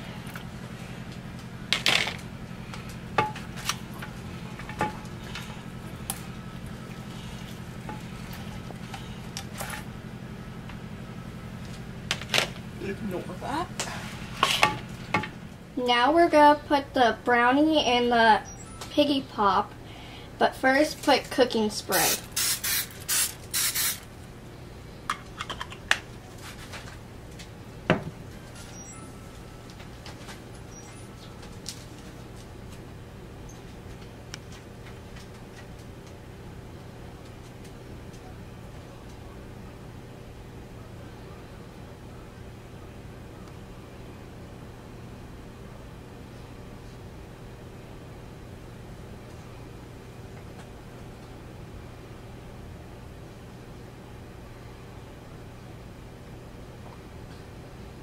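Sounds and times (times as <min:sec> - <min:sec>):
steady low hum: 0:00.0 - 0:58.0
aerosol spray hissing: 0:22.0 - 0:24.0.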